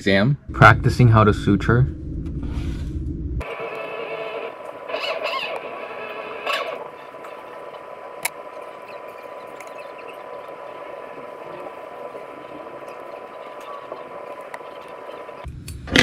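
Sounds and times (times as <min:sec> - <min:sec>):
room hum: 0:00.0 - 0:16.0
constant high tone: 0:03.4 - 0:15.5.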